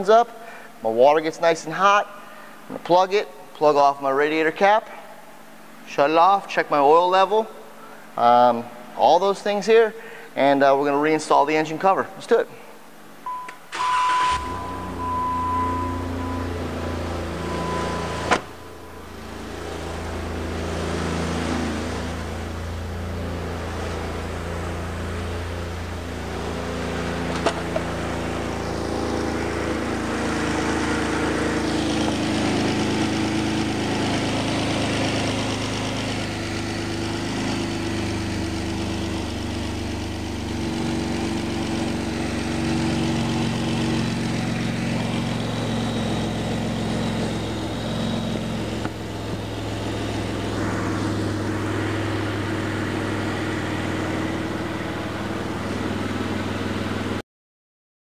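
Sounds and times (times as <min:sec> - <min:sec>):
car engine idling: 0:13.2 - 0:57.2.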